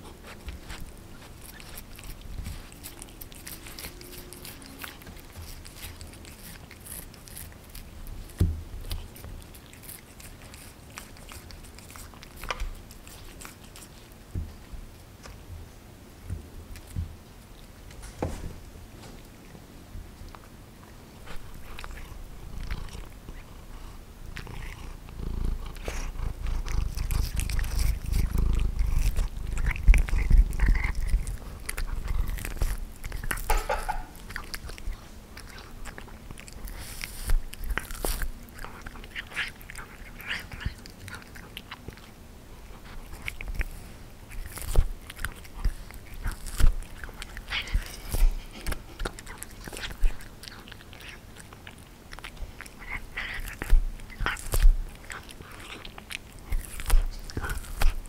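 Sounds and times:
cat chewing on bone: 0.0s - 18.0s, 18.9s - 58.0s
teeth clicking on bone: 24.4s - 42.1s, 44.3s - 58.0s.

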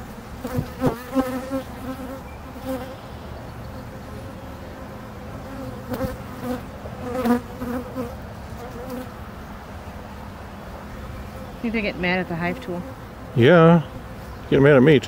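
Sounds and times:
bees buzzing: 0.0s - 14.4s
bee buzzing past microphone: 0.4s - 3.1s, 3.9s - 9.2s.

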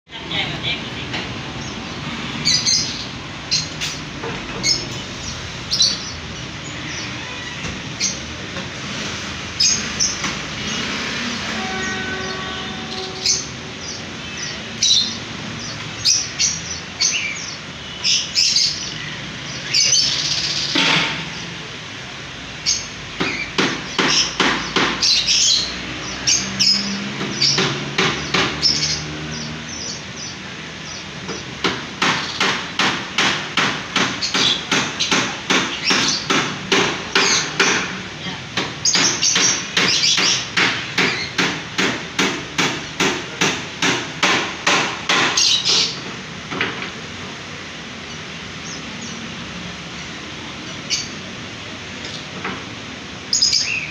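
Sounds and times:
lovebirds chirping: 0.2s - 8.3s, 9.6s - 21.7s, 34.0s - 36.4s, 53.3s - 53.9s.

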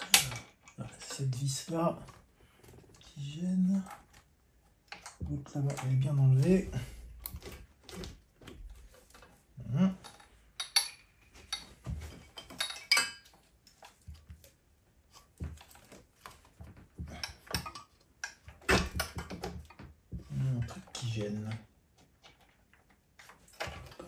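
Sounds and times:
metallic clinks and knocks from tools: 0.0s - 2.2s, 10.0s - 14.0s, 17.1s - 19.8s.

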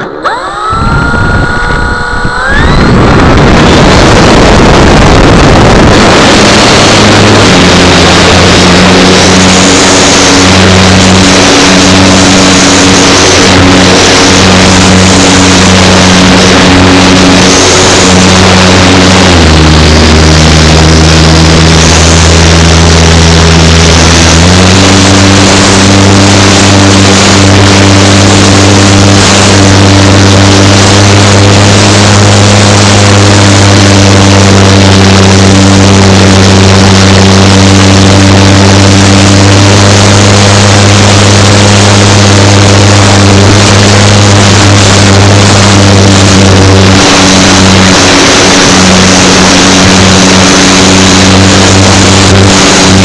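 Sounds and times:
aircraft engine and propeller: 0.0s - 53.0s.

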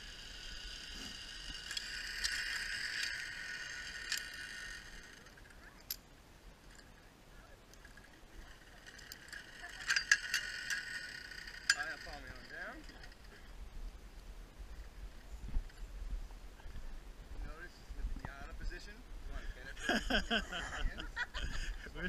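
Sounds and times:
zipline pulleys whining on cable: 0.0s - 6.0s, 7.8s - 13.4s.

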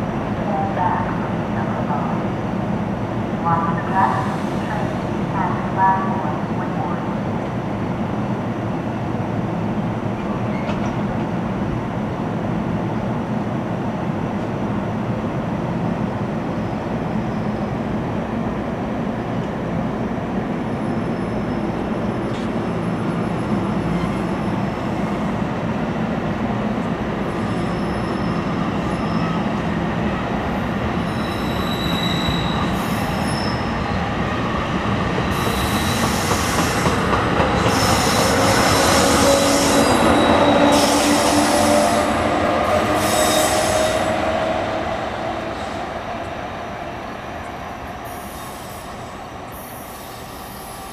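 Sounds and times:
train wheels rumbling on rail: 0.0s - 50.9s
wheel squeal: 31.1s - 33.7s
electric locomotive whine: 35.2s - 50.9s.

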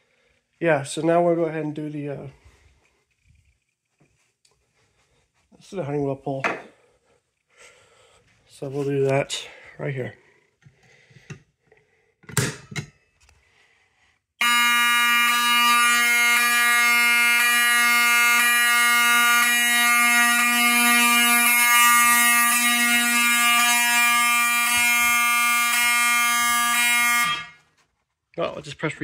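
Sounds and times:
buzzing fire alarm horn: 14.4s - 27.8s.

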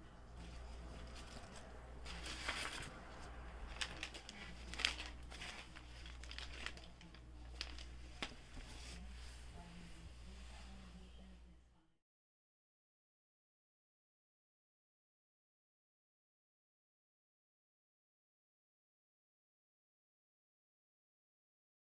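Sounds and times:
tissue paper rustling: 0.4s - 11.0s.

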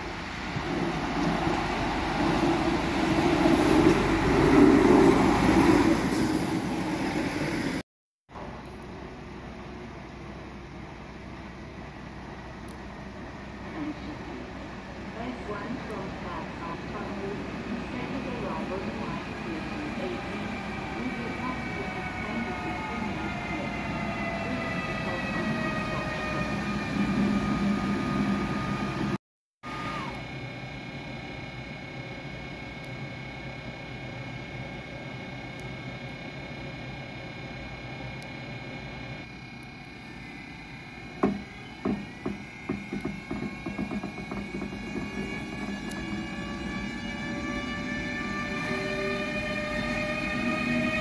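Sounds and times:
rail vehicle rumbling past: 0.0s - 7.8s, 8.4s - 29.2s, 40.5s - 51.0s
high whining tones falling in pitch: 39.2s - 51.0s
train wheels rumbling: 41.0s - 51.0s.

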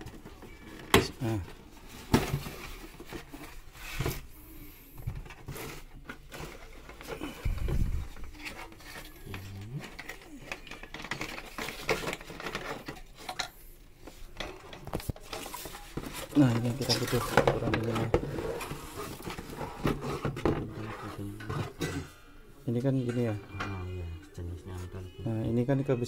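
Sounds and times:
cardboard rustling and scraping: 0.0s - 4.3s, 5.1s - 13.0s, 14.8s - 21.8s.

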